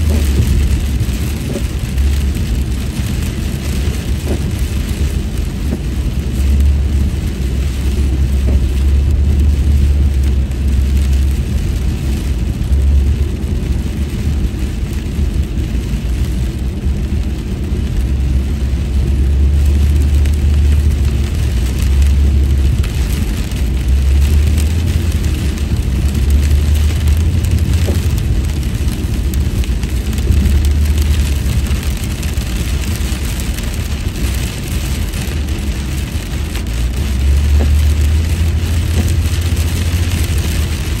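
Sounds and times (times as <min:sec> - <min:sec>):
deep road rumble: 0:00.0 - 0:41.0
rain on car: 0:00.0 - 0:41.0
tyres hissing on wet pavement: 0:00.0 - 0:41.0.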